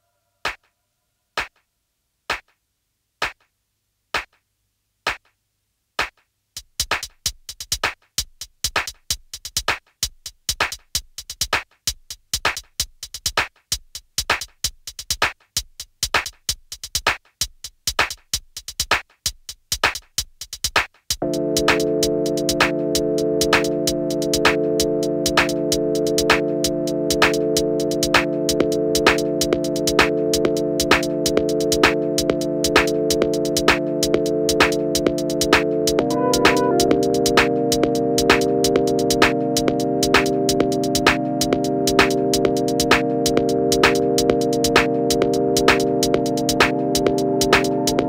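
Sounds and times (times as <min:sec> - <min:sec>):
dense click rhythm: 0:21.2 - 0:48.0
sustained synthesizer chord: 0:36.0 - 0:37.4.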